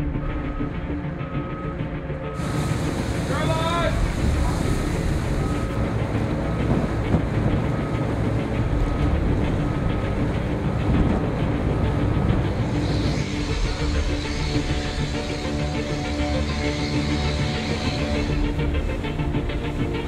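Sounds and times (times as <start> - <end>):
ship engines rumbling: 0.0 - 20.0
wind on microphone: 2.4 - 16.0.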